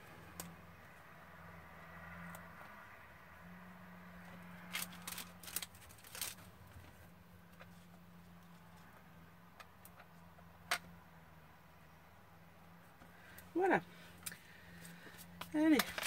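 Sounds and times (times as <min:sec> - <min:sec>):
lawnmower humming outside: 0:00.0 - 0:16.0
paper rustling and crinkling: 0:04.6 - 0:07.0, 0:14.8 - 0:16.0.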